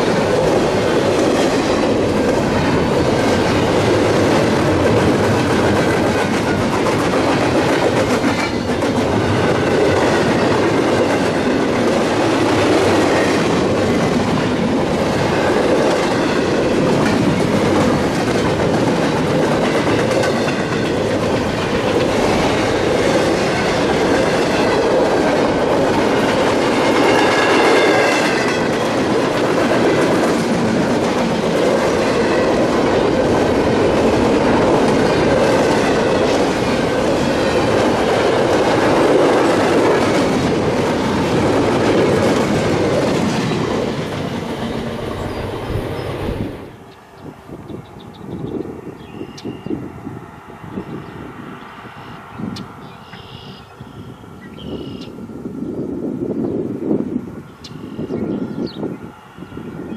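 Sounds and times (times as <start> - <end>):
freight train wheels clattering: 0.0 - 47.0.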